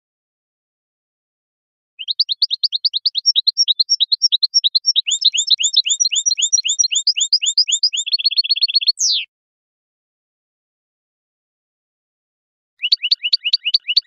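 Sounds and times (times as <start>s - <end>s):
finch song chirps and trill: 2.0s - 9.3s, 12.8s - 14.0s.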